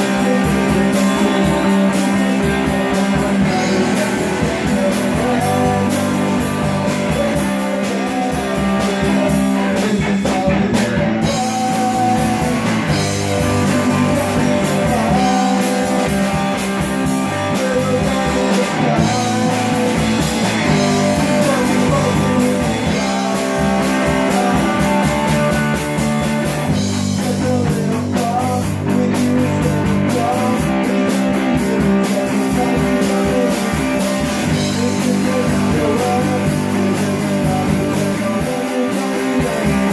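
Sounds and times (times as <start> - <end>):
bass guitar: 0.0 - 39.9
drums: 0.0 - 39.9
electric guitar: 0.0 - 39.9.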